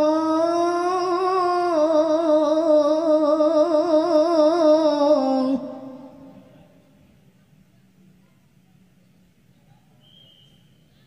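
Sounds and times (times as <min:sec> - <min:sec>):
boy reciting melodically: 0:00.0 - 0:06.5.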